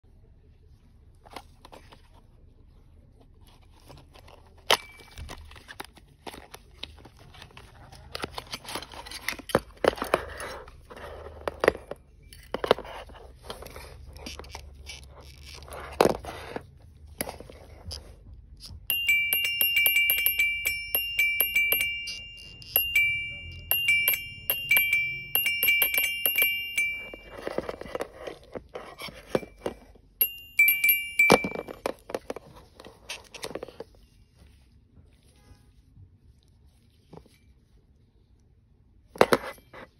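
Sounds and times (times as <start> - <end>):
electronic chiming beep tune: 18.9 - 27.6.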